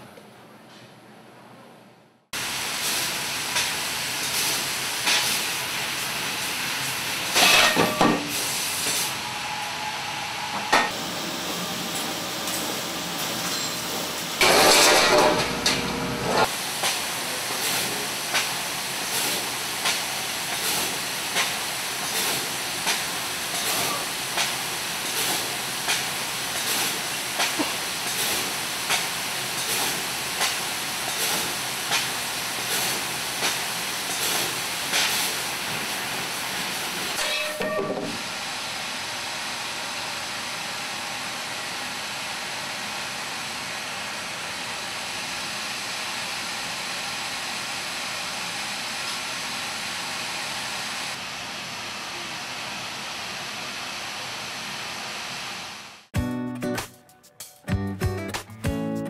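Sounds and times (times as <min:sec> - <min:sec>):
metal cutting strokes: 0:14.4 - 0:16.5.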